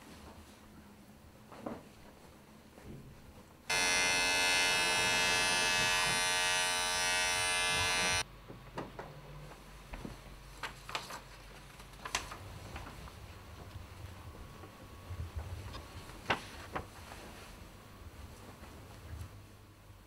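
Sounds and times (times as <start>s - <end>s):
small electric device buzzing: 3.7s - 8.2s.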